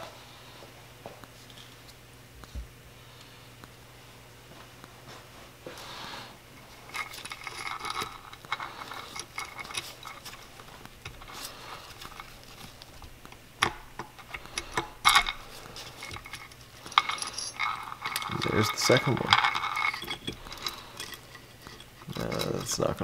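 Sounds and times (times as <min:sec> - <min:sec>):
chain rattling: 0:06.6 - 0:13.0, 0:14.1 - 0:23.0
light metallic clinks: 0:13.7 - 0:23.0.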